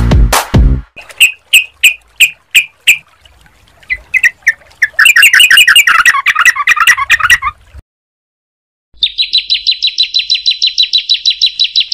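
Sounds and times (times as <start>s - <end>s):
songbirds calling: 3.8s - 7.5s, 9.0s - 11.9s
bird chattering song: 9.0s - 11.9s.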